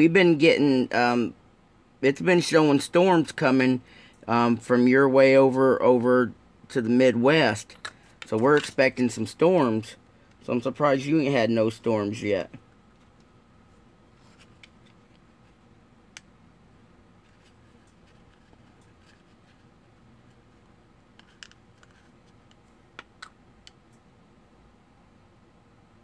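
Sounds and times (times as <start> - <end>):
plastic parts clicking and tapping: 21.1 - 23.8.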